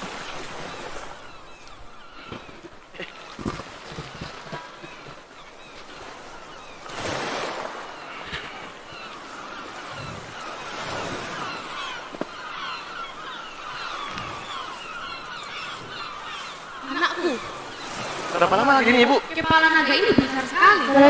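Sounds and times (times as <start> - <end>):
ocean surf hissing: 6.2 - 21.0.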